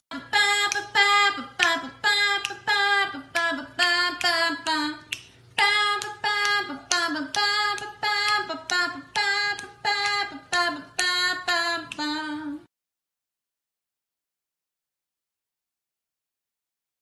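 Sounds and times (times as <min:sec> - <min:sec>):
person singing high melody: 0:00.1 - 0:12.7.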